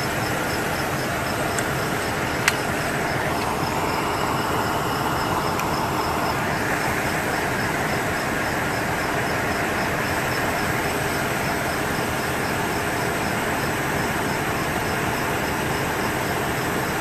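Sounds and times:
faint high ticking: 0.0s - 11.3s
diesel engine idling: 0.0s - 17.0s.

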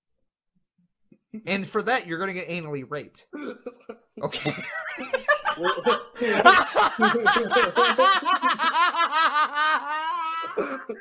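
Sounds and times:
men laughing: 3.4s - 11.0s.

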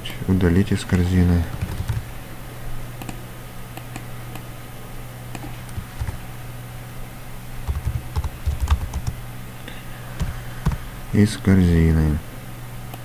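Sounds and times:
steady low hum: 0.0s - 13.0s
computer keyboard typing: 1.5s - 2.1s, 5.4s - 6.2s, 7.6s - 9.2s, 10.2s - 10.8s.

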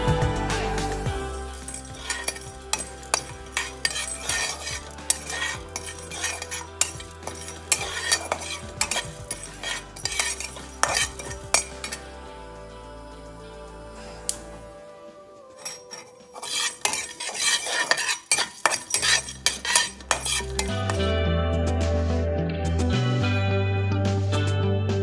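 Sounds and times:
spatula scraping spices in pan: 1.4s - 12.0s, 15.6s - 21.1s
metal clinks: 1.5s - 12.0s, 15.6s - 21.0s.

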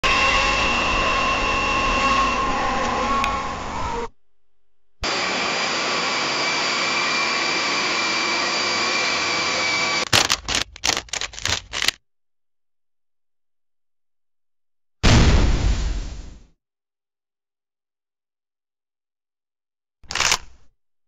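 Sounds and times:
jet engine roar: 0.0s - 4.1s, 5.0s - 11.9s
sharp clicks and pops: 10.0s - 12.0s, 20.1s - 20.7s.

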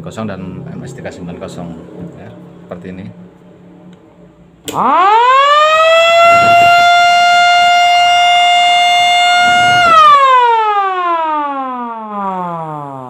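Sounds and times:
electric motor siren wailing: 4.7s - 13.0s.

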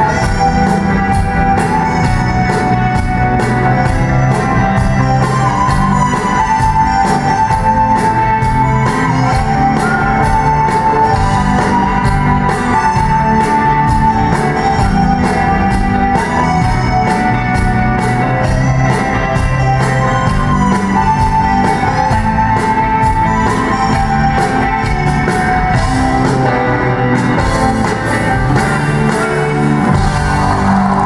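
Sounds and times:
live rock band playing: 0.0s - 31.0s
drum beat: 27.4s - 31.0s.

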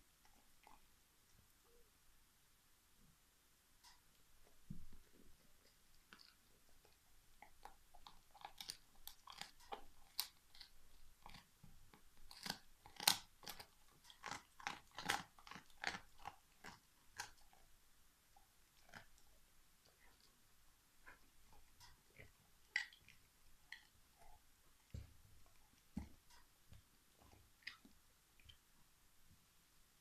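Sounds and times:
dog gnawing a bone: 4.8s - 17.7s, 18.3s - 20.4s, 21.0s - 28.6s
bone crunching and cracking: 12.3s - 17.4s.

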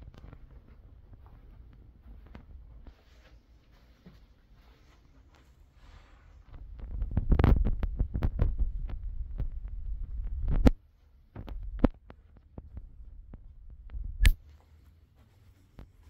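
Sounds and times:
clicks and thumps: 6.5s - 14.4s.

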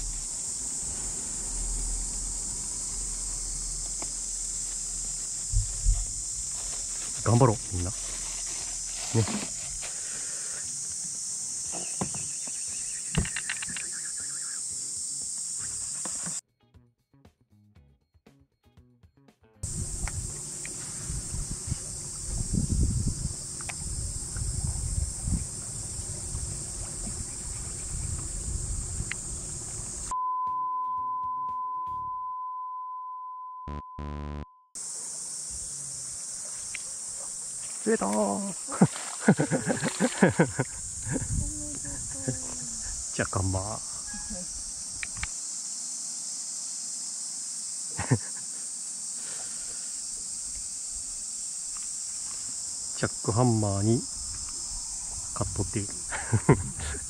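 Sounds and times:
cicadas shrilling: 0.0s - 16.4s, 19.6s - 30.1s, 34.8s - 57.0s
high electronic beep tone: 30.1s - 34.7s
quick electronic notes: 33.7s - 34.5s
short buzzer blasts: 33.7s - 34.5s.

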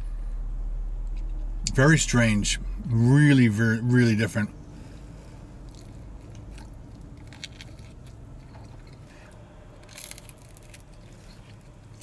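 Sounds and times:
low steady hum: 0.0s - 12.0s
person chewing pizza: 5.1s - 12.0s.

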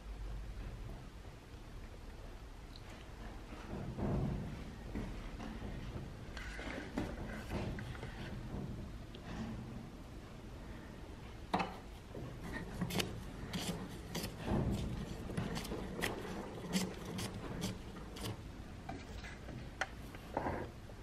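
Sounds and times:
vise screw metal rubbing: 12.6s - 18.4s.

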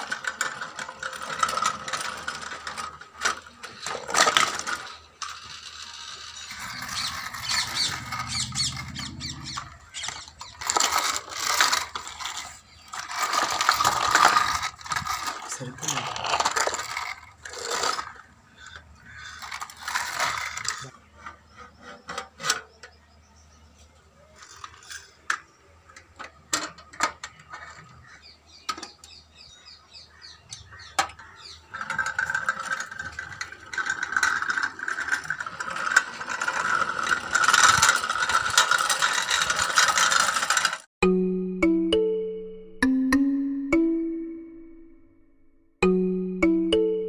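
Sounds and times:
plastic rattling: 0.0s - 22.9s, 30.6s - 40.9s
plastic toys clicking and knocking: 0.0s - 29.4s, 30.2s - 40.9s.

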